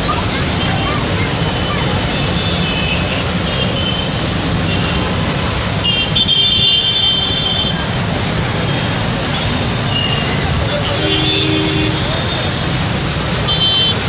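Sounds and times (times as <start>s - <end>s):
fountain gushing and splashing: 0.0s - 14.0s
passing traffic: 0.0s - 14.0s
vehicle horns: 5.8s - 7.8s, 9.3s - 12.8s, 13.4s - 14.0s.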